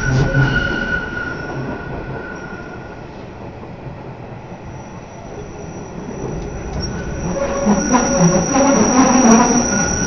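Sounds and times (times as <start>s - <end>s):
train wheels rumbling on rails: 0.0s - 10.0s
faint high squeal: 4.6s - 10.0s.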